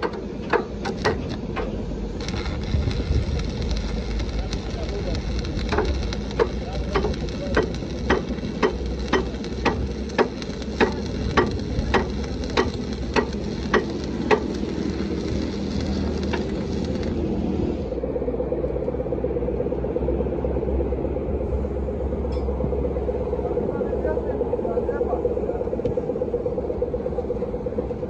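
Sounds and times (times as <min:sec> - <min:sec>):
sharp regular clicks: 0:00.0 - 0:17.2
welding arc crackling hiss: 0:00.0 - 0:17.9
low mechanical hum: 0:00.0 - 0:28.0.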